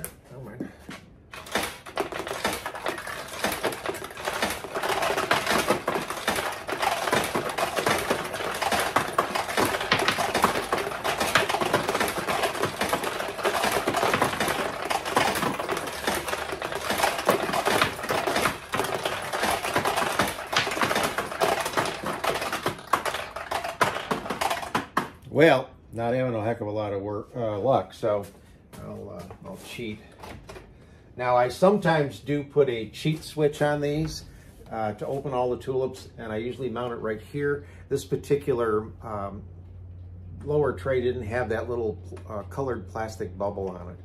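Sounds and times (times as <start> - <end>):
pachinko balls clattering off pins: 1.3 - 25.2.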